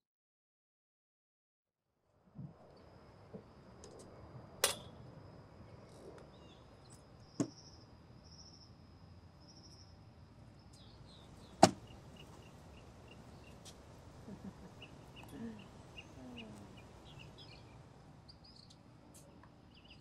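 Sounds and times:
thin steady high whine: 2.3s - 20.0s
sharp knocks: 11.6s - 12.0s.

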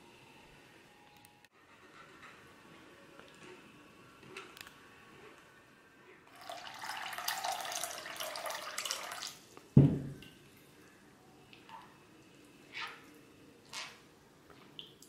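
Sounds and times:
loud low thump: 9.8s - 10.2s.

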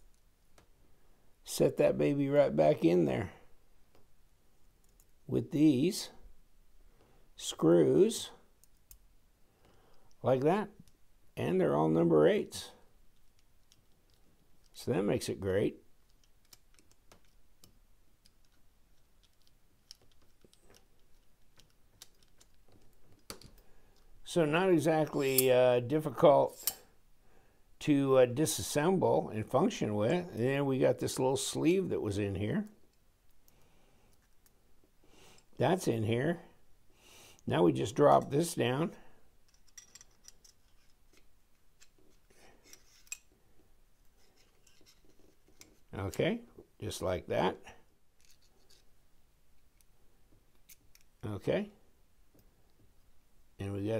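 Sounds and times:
metal knife parts clicking: 25.1s - 25.5s, 39.5s - 41.2s, 42.6s - 43.3s
light metal scraping: 26.4s - 26.9s, 42.1s - 43.3s, 44.1s - 46.3s.

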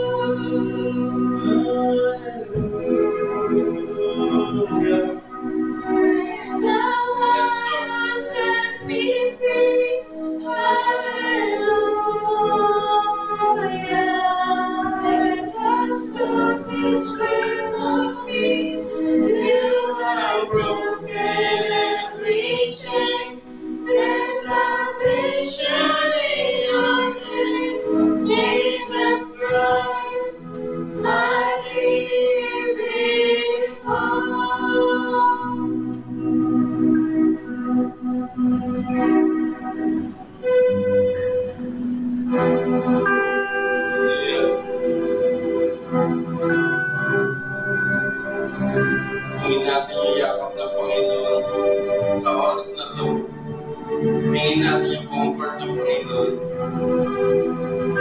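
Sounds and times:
women singing together: 0.0s - 5.2s, 5.8s - 35.7s
electric and acoustic guitars: 0.0s - 58.0s.

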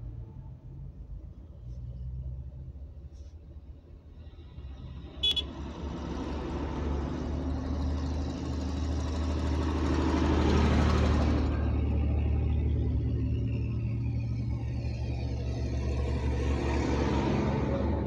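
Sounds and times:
truck engine and road noise: 0.0s - 18.0s
horn toot: 5.2s - 5.5s.

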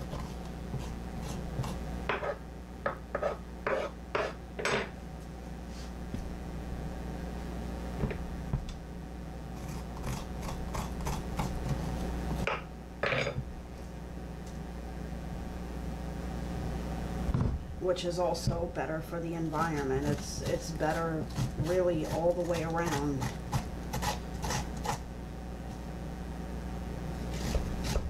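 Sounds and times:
metal spoon scraping pumpkin: 3.1s - 4.4s, 19.1s - 25.0s.

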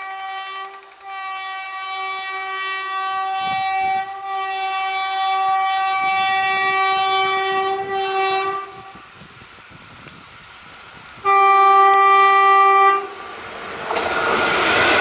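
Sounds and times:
train horn blast: 0.0s - 9.1s, 11.2s - 13.3s
train rumble: 0.0s - 15.0s.

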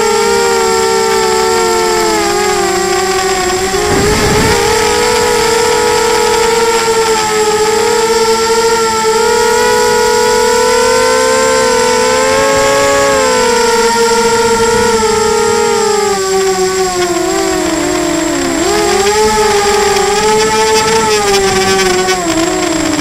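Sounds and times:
drone propellers whining: 0.0s - 23.0s
low rumble: 3.3s - 6.7s.

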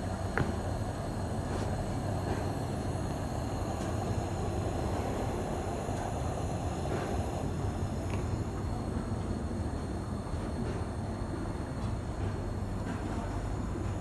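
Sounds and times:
pressure lantern hissing: 0.0s - 11.3s.

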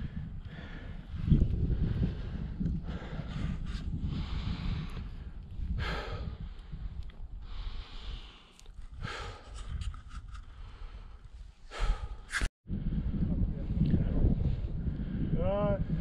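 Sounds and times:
heavy breathing through face mask: 0.0s - 12.5s
low wind rumble on microphone: 0.0s - 16.0s.

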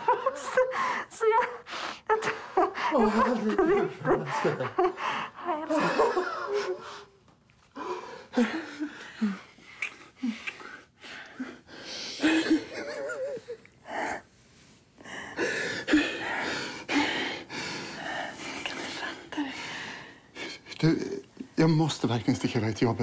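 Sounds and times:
person sobbing: 7.8s - 9.5s, 12.2s - 14.2s.

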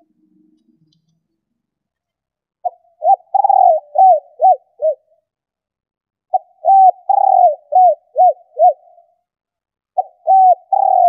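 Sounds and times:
dove cooing: 2.6s - 5.1s, 6.3s - 9.1s, 10.0s - 11.0s.

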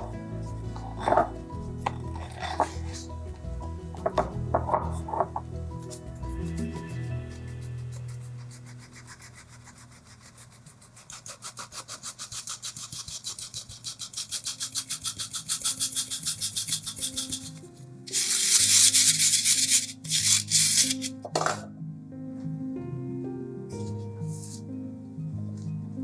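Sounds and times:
soft background music: 0.0s - 10.7s, 14.1s - 26.0s
flour rasping through sieve: 7.2s - 21.1s.

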